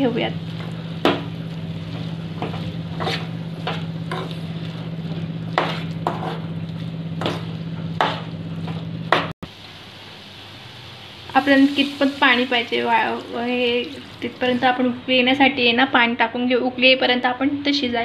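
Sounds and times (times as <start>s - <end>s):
steady low hum: 0.0s - 15.9s
metal spatula scraping a pan: 1.9s - 4.8s, 5.5s - 6.5s.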